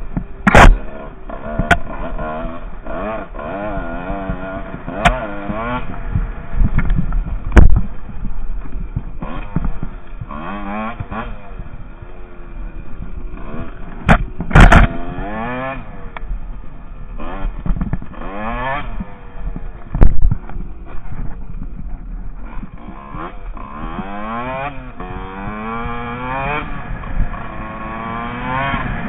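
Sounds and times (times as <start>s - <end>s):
dirt bike engine revving: 0.0s - 29.0s.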